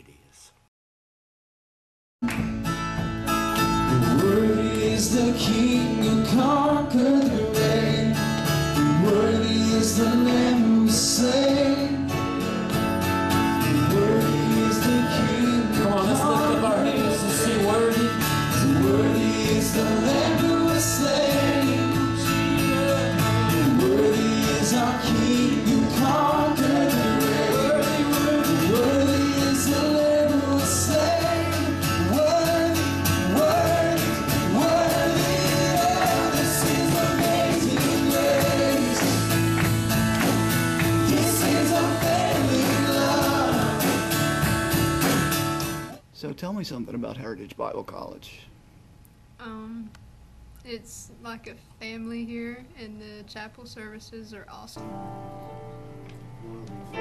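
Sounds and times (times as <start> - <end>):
guitar-led band: 2.2 - 46.0, 54.8 - 57.0
person singing: 4.0 - 8.2, 13.7 - 39.5, 41.0 - 44.2, 56.4 - 57.0.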